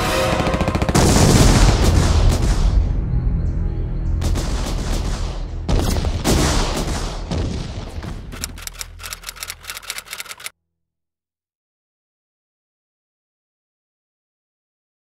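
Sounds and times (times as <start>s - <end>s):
rapid sharp clicks: 8.4s - 10.5s.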